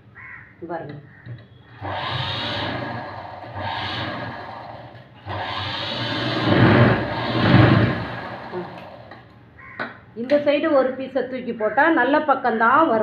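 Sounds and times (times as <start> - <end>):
sewing machine running: 1.7 - 9.3.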